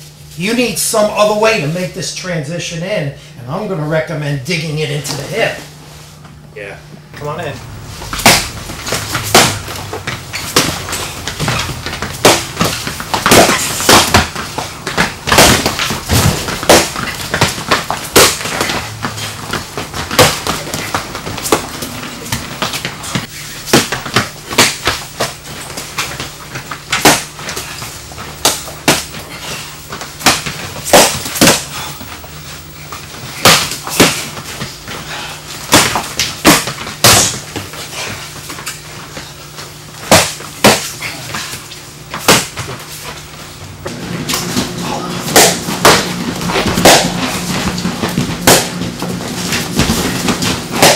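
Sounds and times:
feet stamping on hard floor: 7.5s - 50.9s
baton strikes slapping: 8.1s - 9.8s, 10.4s - 14.4s, 15.0s - 18.8s, 20.1s - 25.4s, 26.9s - 27.5s, 28.4s - 29.2s, 30.2s - 31.8s, 33.4s - 34.4s, 35.7s - 37.5s, 40.0s - 41.0s, 42.1s - 42.6s, 45.3s - 47.5s, 48.1s - 48.8s, 49.5s - 50.9s.

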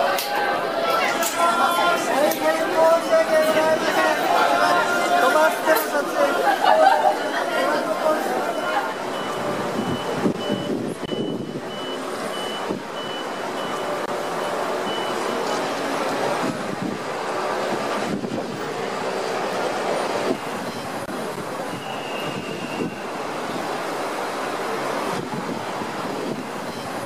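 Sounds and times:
crowd noise: 0.0s - 27.0s
street traffic: 0.0s - 27.0s
high electronic beeps: 7.1s - 15.5s.

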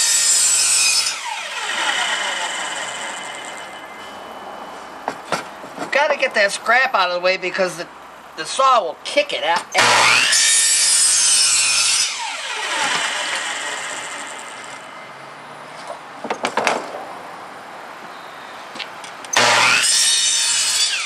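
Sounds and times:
saw blade winding down: 0.0s - 3.9s, 9.8s - 14.9s, 19.4s - 21.0s
miter saw cutting wood: 0.0s - 4.2s, 9.8s - 15.0s, 19.3s - 21.0s
knocks of wood scrap: 5.0s - 6.0s.

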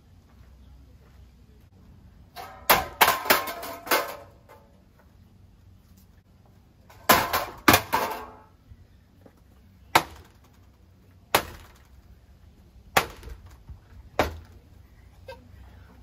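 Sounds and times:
fan blades hitting objects: 2.3s - 4.7s, 6.9s - 8.5s, 9.9s - 12.2s, 12.9s - 14.7s.

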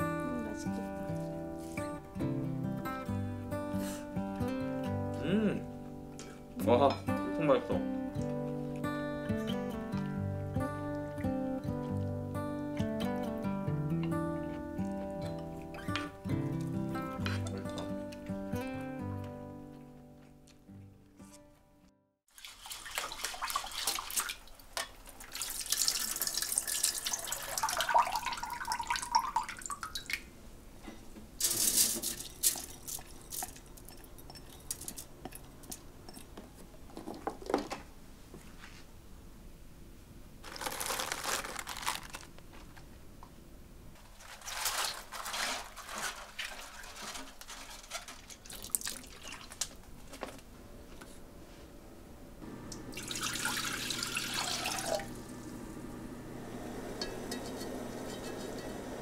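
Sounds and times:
tap water running into a sink: 22.4s - 30.2s, 52.7s - 55.4s.

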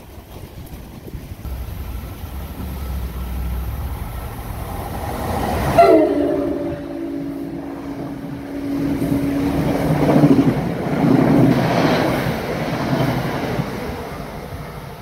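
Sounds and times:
train wheels roaring on rail: 0.0s - 15.0s
wind buffeting microphone: 0.0s - 15.0s
low steady hum: 1.5s - 5.3s.

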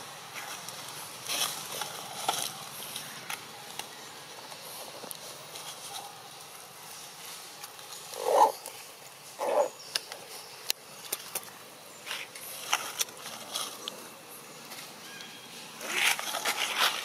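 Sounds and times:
monkey low calls: 8.1s - 8.7s.

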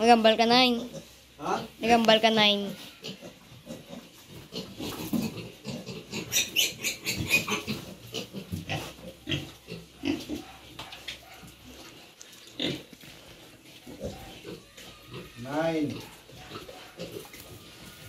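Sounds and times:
pigs grunting: 2.8s - 11.1s, 12.6s - 12.9s, 13.8s - 18.0s.

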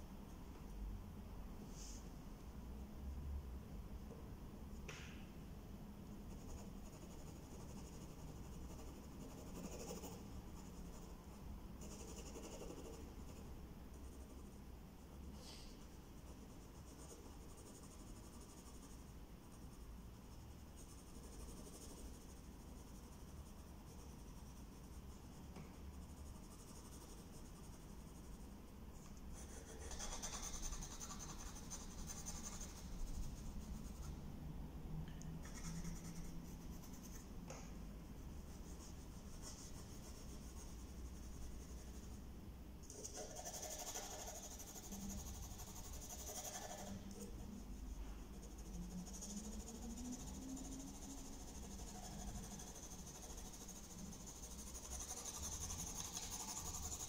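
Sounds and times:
pencil scratching on paper: 6.3s - 11.2s, 11.8s - 13.5s, 16.2s - 28.4s, 29.3s - 34.2s, 38.4s - 42.2s, 42.8s - 47.7s, 48.3s - 57.0s.

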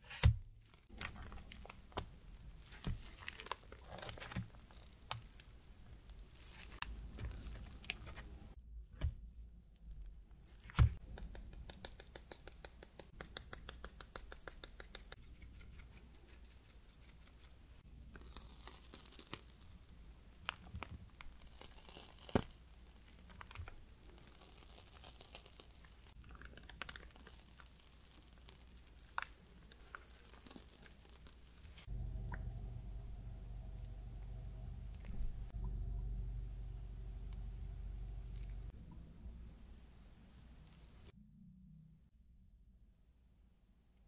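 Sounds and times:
piping bag crinkling and squishing: 0.6s - 8.5s, 17.9s - 31.9s.

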